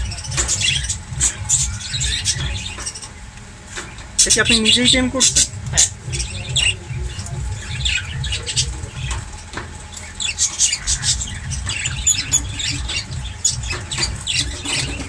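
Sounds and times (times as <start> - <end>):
low rumble: 0.0 - 15.0
parrots chirping and squawking: 0.0 - 15.0.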